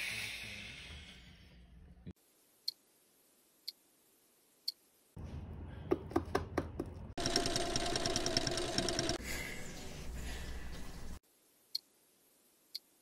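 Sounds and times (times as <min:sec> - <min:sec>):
sewing machine stitching: 0:07.2 - 0:09.2.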